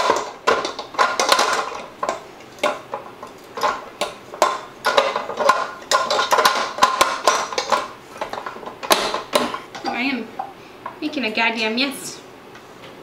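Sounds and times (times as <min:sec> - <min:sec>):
metal mixer bowl clanking: 0:00.0 - 0:10.1.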